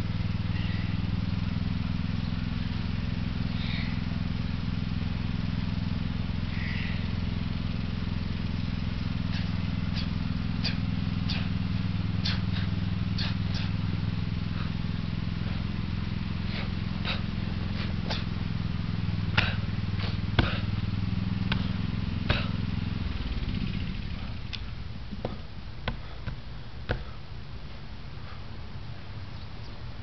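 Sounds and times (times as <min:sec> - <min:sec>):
low engine drone: 0:00.0 - 0:30.0
hands striking wooden post: 0:20.4 - 0:20.7, 0:25.1 - 0:27.1.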